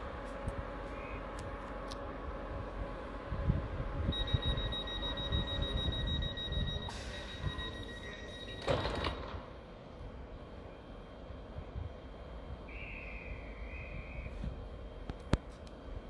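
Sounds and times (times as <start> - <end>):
pulsing door warning beep: 4.1 - 9.3.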